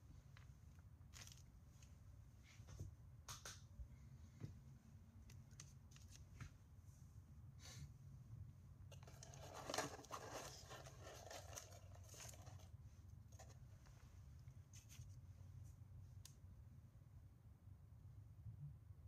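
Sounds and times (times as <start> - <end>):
low steady hum: 0.0 - 19.0
paper rustle: 8.9 - 12.7, 13.3 - 14.0.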